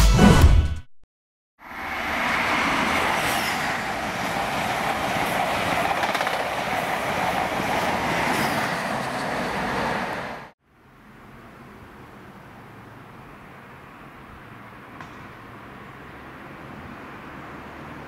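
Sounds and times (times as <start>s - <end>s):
train wheels rushing on rail: 1.6s - 10.5s.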